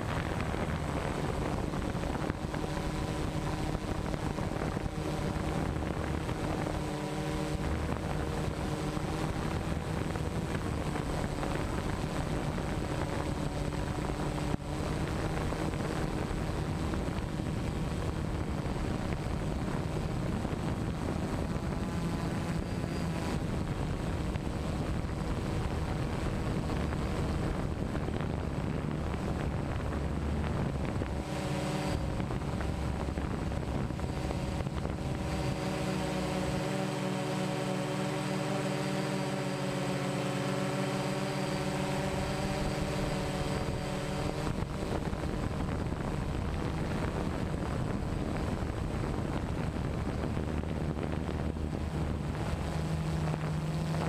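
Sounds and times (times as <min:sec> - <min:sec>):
drone propellers humming: 0:00.0 - 0:54.0
wind buffeting microphone: 0:00.0 - 0:54.0.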